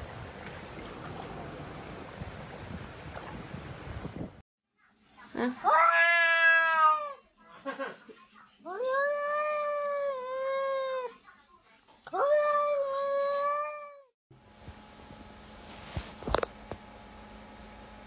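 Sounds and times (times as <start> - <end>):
cat meowing: 5.7 - 7.2.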